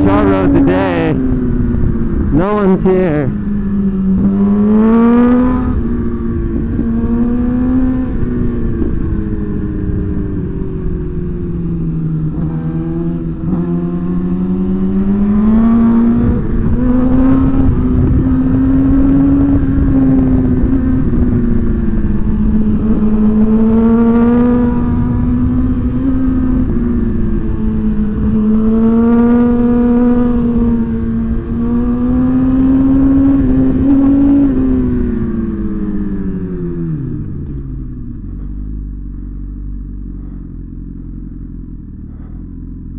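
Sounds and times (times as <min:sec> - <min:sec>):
motorcycle engine revving: 0:00.0 - 0:42.9
wind rumble: 0:00.0 - 0:42.9.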